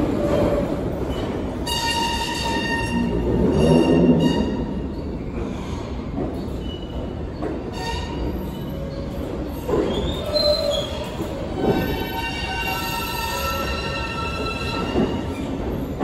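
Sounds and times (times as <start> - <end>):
train whining tones: 0.0 - 5.6
train wheels rumbling on rail: 0.0 - 16.0
wheels squealing: 7.7 - 16.0.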